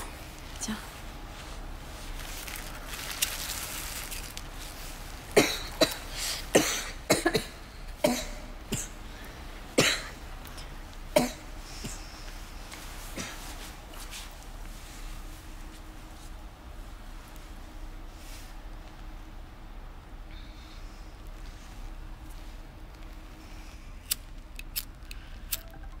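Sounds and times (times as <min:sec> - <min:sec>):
person coughing: 0:05.4 - 0:09.0, 0:09.8 - 0:10.2, 0:11.2 - 0:12.0.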